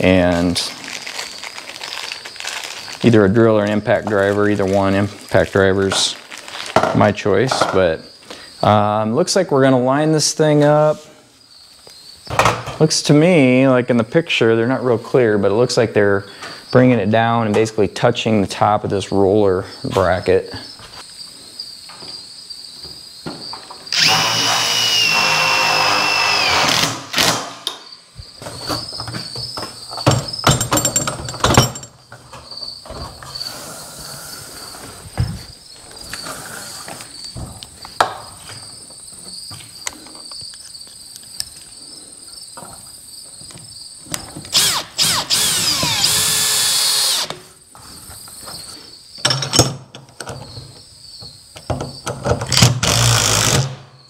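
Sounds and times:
crickets chirping: 0:00.0 - 0:54.0
impact driver driving screws: 0:44.5 - 0:47.4.

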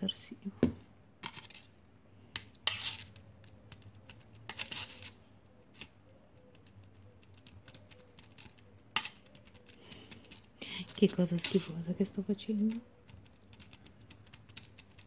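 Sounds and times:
plastic fork stirring slime: 0:02.4 - 0:15.0
fork scraping plate: 0:02.6 - 0:03.1.

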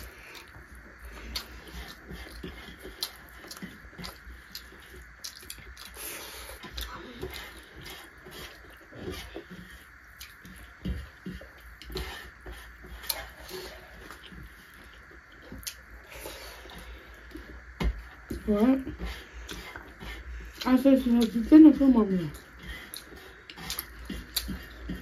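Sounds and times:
low steady hum: 0:00.0 - 0:25.0
mouth smacks and chewing: 0:01.2 - 0:12.0, 0:22.3 - 0:25.0.

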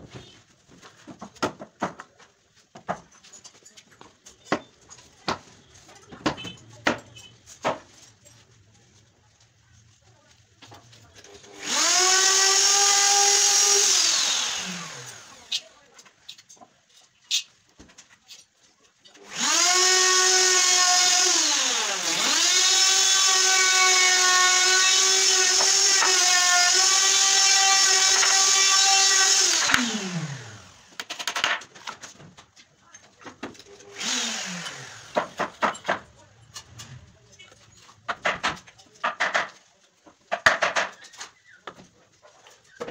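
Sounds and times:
electric drill running: 0:11.5 - 0:15.6, 0:19.2 - 0:31.4, 0:33.9 - 0:35.4.

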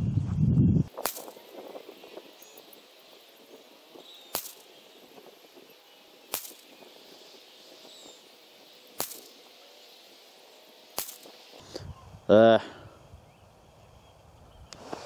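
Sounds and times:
rifle shots cracking: 0:06.3 - 0:06.7, 0:09.0 - 0:09.3, 0:11.0 - 0:11.3.

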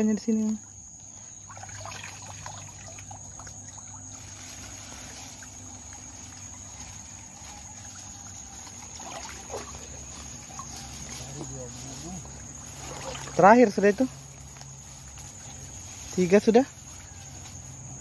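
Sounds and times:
high insect trill: 0:00.0 - 0:18.0
stream water splashing: 0:01.1 - 0:14.4.

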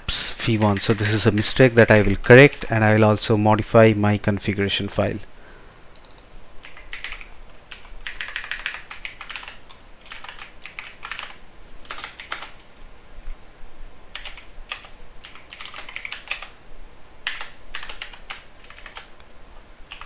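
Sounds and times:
computer keyboard typing: 0:00.5 - 0:02.7, 0:05.9 - 0:12.6, 0:14.1 - 0:16.6, 0:17.2 - 0:19.1.

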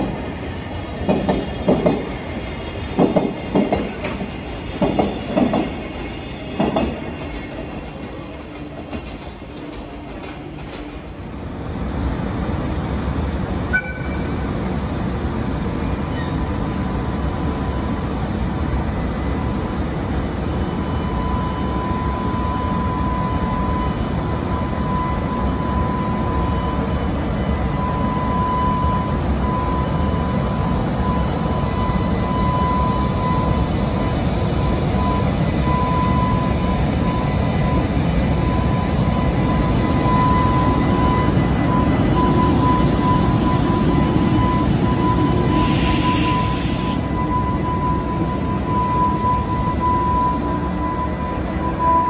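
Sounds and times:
locomotive high whine: 0:00.0 - 0:52.0
wheels rumbling on rails: 0:00.0 - 0:52.0
brief hiss: 0:45.5 - 0:47.0.

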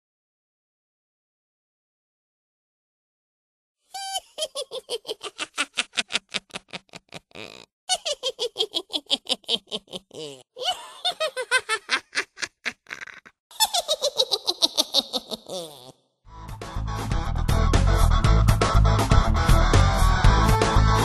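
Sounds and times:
high-pitched giggling: 0:04.0 - 0:16.0.

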